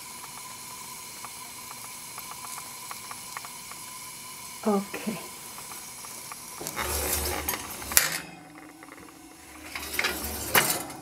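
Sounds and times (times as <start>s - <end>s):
metal oven rack scraping: 6.6s - 11.0s.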